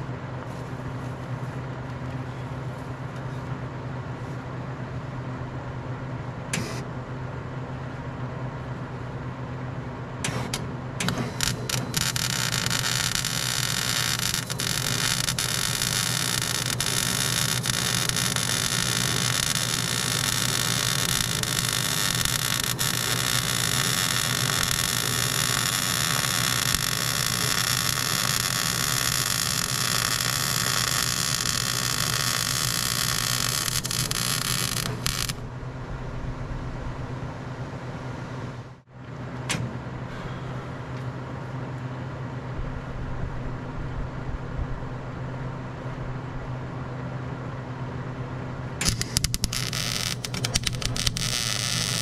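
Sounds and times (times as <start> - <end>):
low hum: 0.0 - 46.9
arc welding hiss: 11.1 - 35.4, 48.8 - 52.0.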